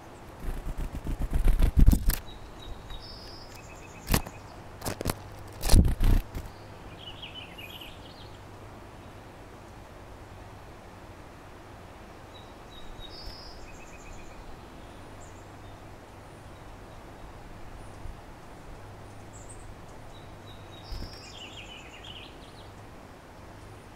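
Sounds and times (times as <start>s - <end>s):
outdoor background hiss: 0.0s - 23.9s
small bird trilling song: 0.4s - 4.6s, 12.4s - 15.8s, 19.1s - 22.8s.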